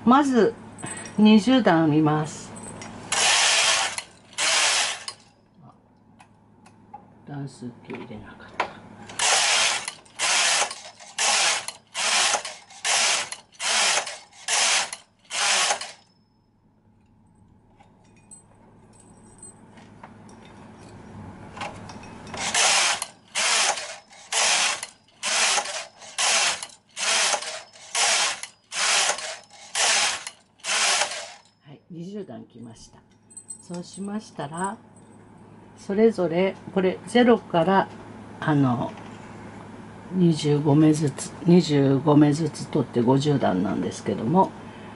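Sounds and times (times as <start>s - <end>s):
knitting machine carriage rasping: 3.1s - 5.3s, 9.1s - 16.0s, 22.3s - 31.5s.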